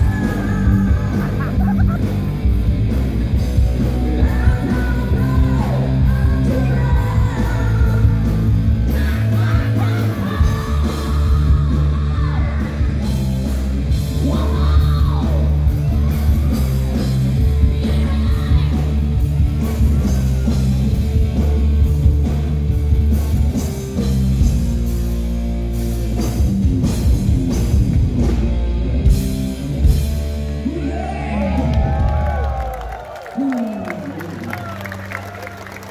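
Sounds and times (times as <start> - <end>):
person singing and yelling: 0.0 - 2.0, 4.0 - 13.2, 14.1 - 20.7
distorted electric guitar: 0.0 - 31.9
bass guitar: 0.0 - 35.9
drums: 0.0 - 35.9.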